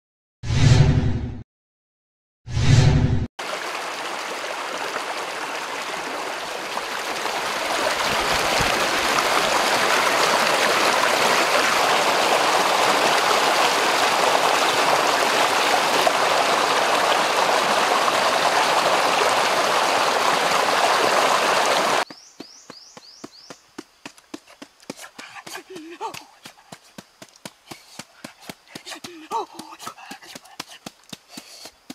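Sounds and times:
stream splashing over rocks: 3.4s - 22.1s, 28.5s - 31.9s.

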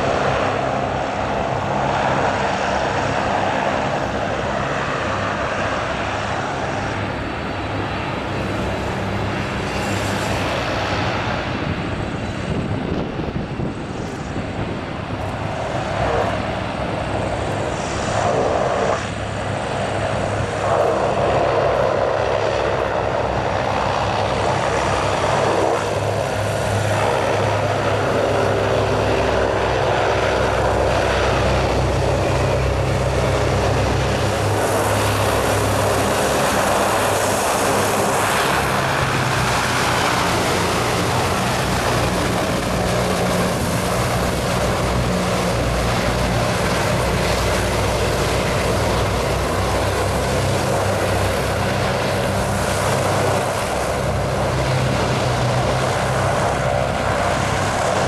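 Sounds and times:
hovercraft engines droning: 0.0s - 58.0s
rush of air and spray: 15.3s - 22.3s.

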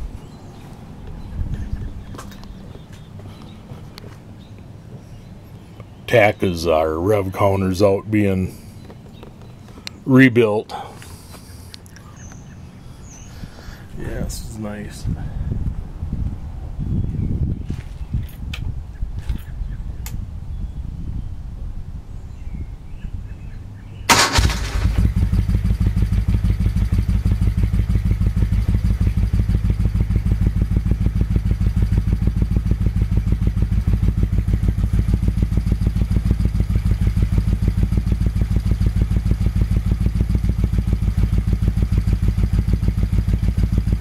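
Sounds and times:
motorcycle engine starting and idling: 24.1s - 44.0s.

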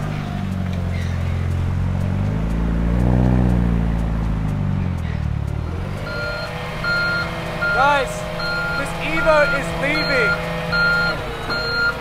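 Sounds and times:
vehicle engine revving: 0.0s - 12.0s
truck reversing alarm beeping: 5.9s - 12.0s.

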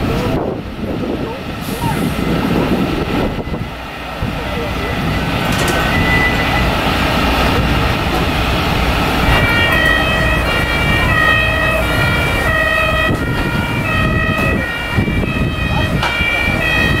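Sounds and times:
engine and street noise: 0.0s - 17.0s
two-tone emergency siren: 9.3s - 17.0s.

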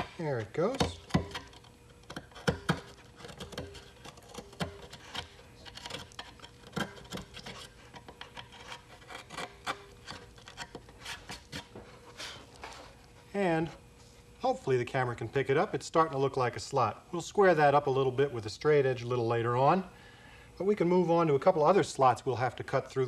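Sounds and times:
hobby knife scraping wood: 0.0s - 12.9s.

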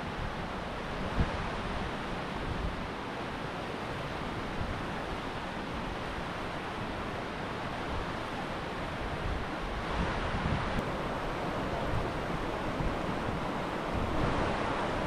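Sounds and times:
river rushing over rocks: 0.1s - 15.0s
wind buffeting microphone: 9.2s - 15.0s.

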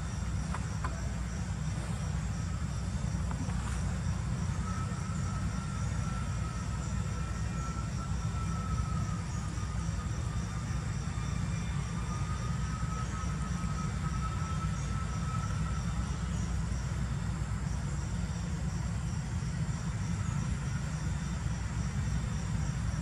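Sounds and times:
pulsing insect trill: 0.0s - 23.0s
thin steady whine: 0.0s - 23.0s.

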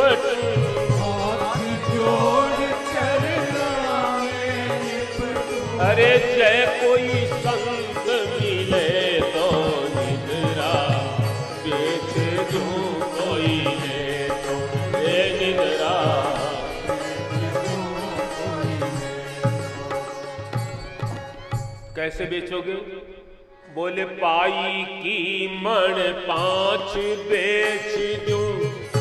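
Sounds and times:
man singing ornamented notes: 0.0s - 20.0s, 22.0s - 29.0s
harmonium melody: 0.0s - 29.0s.

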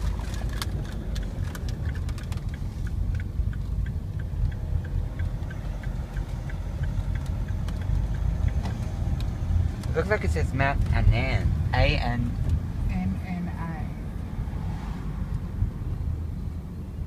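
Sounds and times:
car engine and road rumble: 0.0s - 17.0s
light regular ticking: 0.2s - 11.6s.

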